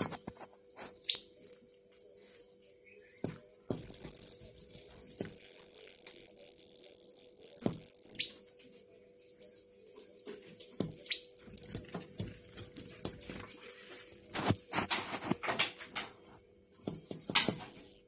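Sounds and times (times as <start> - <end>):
bird chirps: 1.0 - 1.3, 8.0 - 8.4, 10.9 - 11.4.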